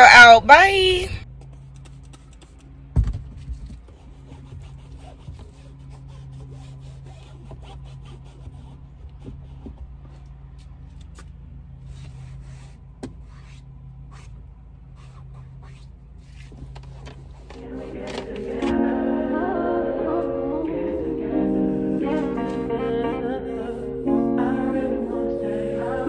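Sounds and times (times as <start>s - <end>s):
cloth rubbing upholstery: 11.8s - 18.9s
steady low hum: 17.4s - 26.0s.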